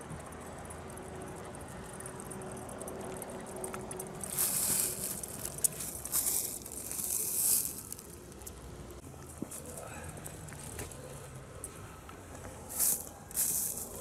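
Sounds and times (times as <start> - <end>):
faint outdoor background: 0.0 - 14.0
loud rustling hiss bursts: 4.3 - 8.0.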